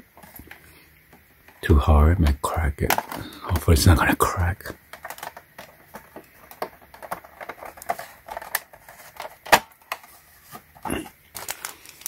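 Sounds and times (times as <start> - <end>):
hard plastic clicking and knocking: 2.8 - 3.6, 4.9 - 10.0.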